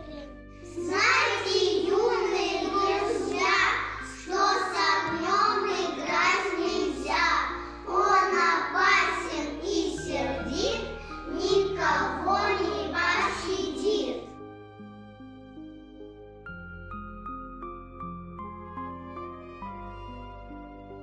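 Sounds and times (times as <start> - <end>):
children singing in unison: 0.8 - 14.1.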